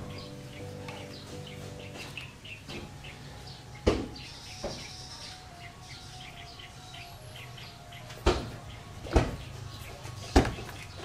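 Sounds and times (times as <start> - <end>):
small birds chirping: 0.0 - 11.0
sharp knocks: 3.8 - 4.9, 8.2 - 9.4.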